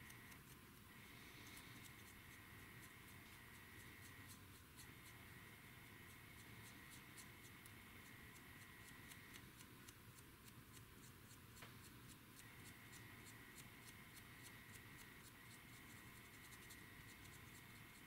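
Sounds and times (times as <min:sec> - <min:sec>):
faint steady high whine: 0:00.0 - 0:18.0.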